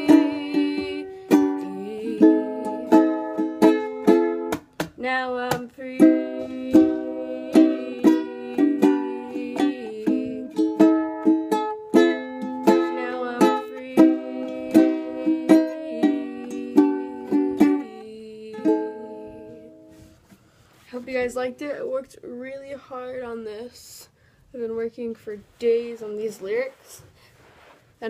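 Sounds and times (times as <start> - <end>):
ukulele strumming chords: 0.0 - 20.2.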